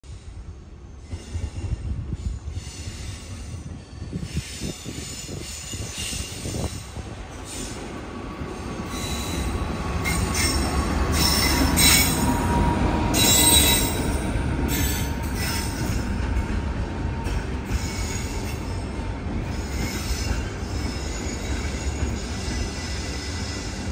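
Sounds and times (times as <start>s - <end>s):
train wheels rumbling on rails: 0.0s - 23.9s
high-pitched wheel squeal: 8.6s - 16.0s.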